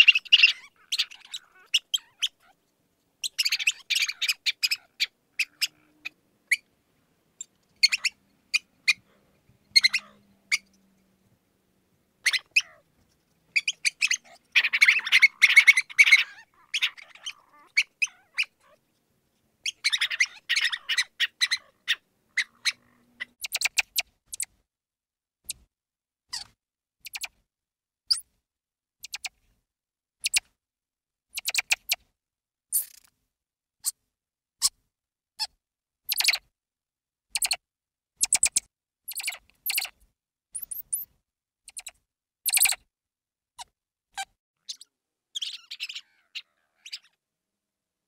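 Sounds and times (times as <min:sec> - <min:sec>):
mouse squeaking: 0:00.0 - 0:02.6, 0:03.2 - 0:06.7, 0:07.4 - 0:09.0, 0:09.7 - 0:10.8, 0:12.2 - 0:18.8, 0:19.6 - 0:24.6, 0:25.4 - 0:25.7, 0:26.3 - 0:27.4, 0:29.0 - 0:29.4, 0:30.2 - 0:30.5, 0:31.3 - 0:32.0, 0:32.7 - 0:33.1, 0:35.4 - 0:36.5, 0:37.3 - 0:37.6, 0:38.2 - 0:40.0, 0:40.6 - 0:42.9, 0:43.6 - 0:47.2.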